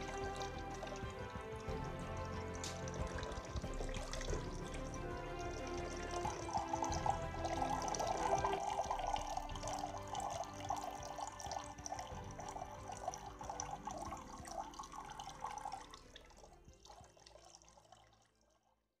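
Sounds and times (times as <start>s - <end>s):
background music: 0.0s - 18.1s
water trickling from fountain: 0.0s - 18.9s.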